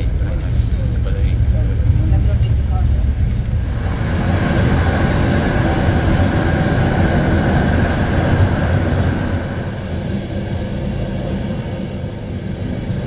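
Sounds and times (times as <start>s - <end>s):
train rumbling on rails: 0.0s - 13.0s.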